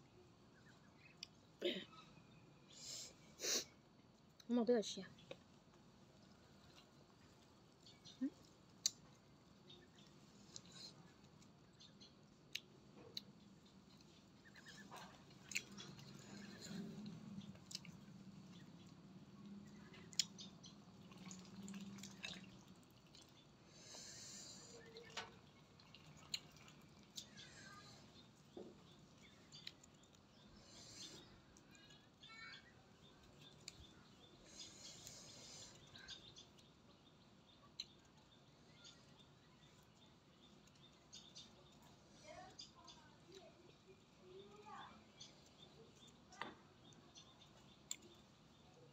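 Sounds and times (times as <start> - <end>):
faint bird chirps: 0.0 - 3.9, 6.6 - 22.7, 23.3 - 48.9
wet chewing: 12.4 - 24.0, 24.6 - 32.1, 33.0 - 36.7.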